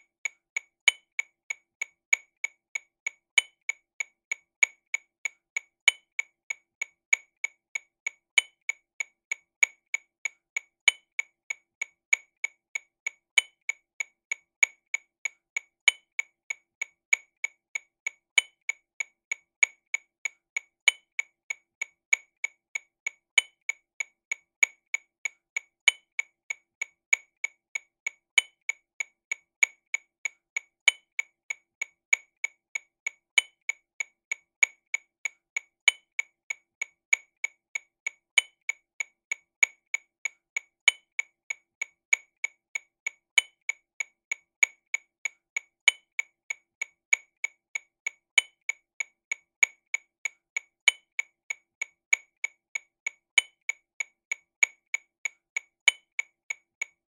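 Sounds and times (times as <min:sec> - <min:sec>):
metronome clicking: 0:40.8 - 0:41.2, 0:45.8 - 0:46.2, 0:50.8 - 0:51.0, 0:55.8 - 0:56.0.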